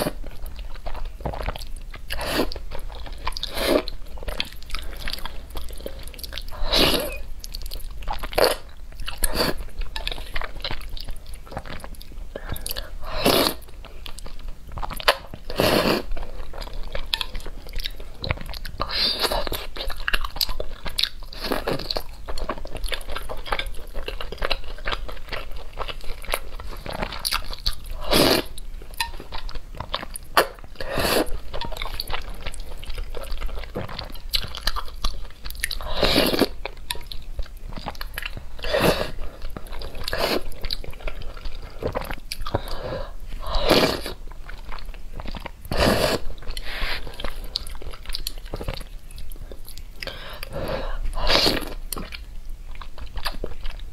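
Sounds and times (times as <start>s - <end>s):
wet chewing and mouth smacks: 44.1s - 50.5s.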